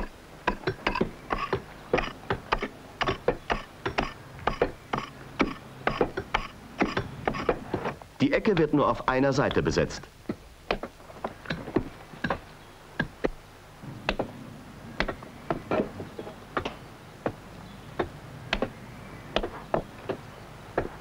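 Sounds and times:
hammer striking iron wedges: 0.0 - 7.8, 13.0 - 14.4.

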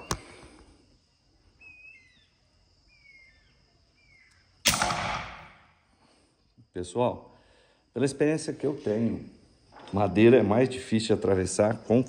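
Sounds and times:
air rifle shot: 4.6 - 5.7.

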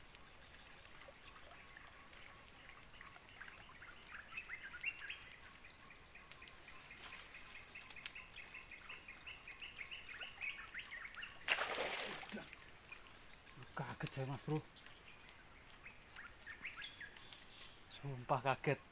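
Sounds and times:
high insect drone: 0.0 - 18.9
loud splash: 11.5 - 12.5.

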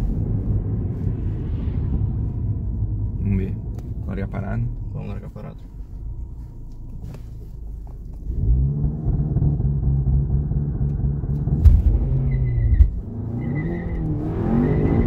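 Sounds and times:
turbocharged car engine revving: 8.3 - 15.0
high turbo whistle: 12.2 - 15.0.

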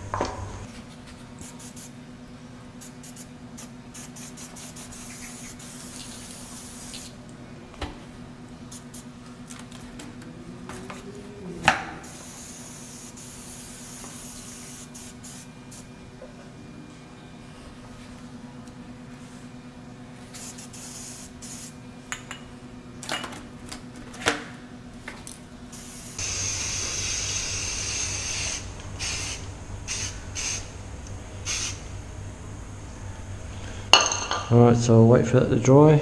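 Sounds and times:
spray paint can hissing: 1.4 - 2.0, 2.8 - 7.2, 8.7 - 9.1, 12.0 - 15.9, 20.3 - 21.8, 25.7 - 30.7, 31.5 - 31.8.

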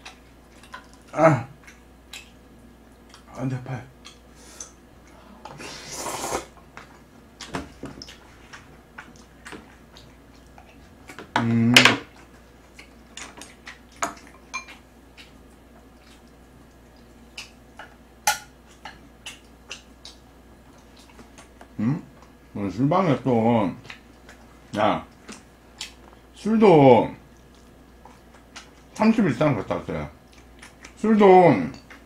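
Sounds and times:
noodle slurp: 5.5 - 6.6
person humming: 11.4 - 11.8, 21.8 - 22.1
chewing mouth clicks: 18.7 - 21.5, 25.1 - 26.2, 27.3 - 29.0, 30.2 - 31.0.

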